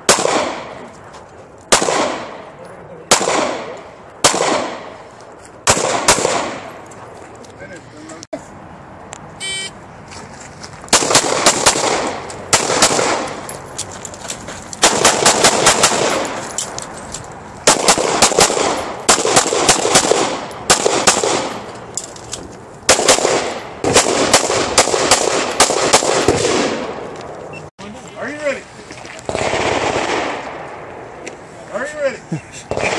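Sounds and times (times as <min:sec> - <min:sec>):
rapid pistol fire: 0:00.1 - 0:00.7, 0:01.7 - 0:02.4, 0:03.1 - 0:04.9, 0:05.6 - 0:06.7, 0:10.9 - 0:13.3, 0:14.8 - 0:16.3, 0:17.7 - 0:21.6, 0:22.9 - 0:26.9, 0:29.3 - 0:30.4.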